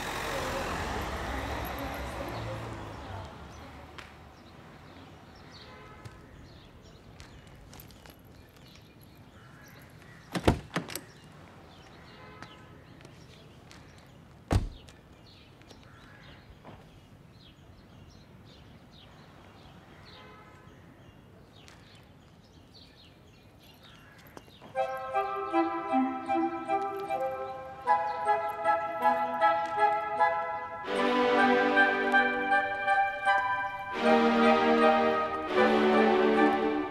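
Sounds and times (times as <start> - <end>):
car door slamming: 14.5 - 14.8
music: 24.8 - 36.9.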